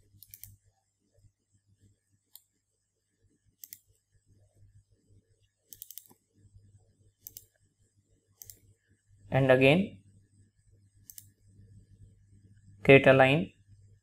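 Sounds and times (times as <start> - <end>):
faint low hum: 0.0 - 14.0
mouse button clicks: 7.2 - 7.5.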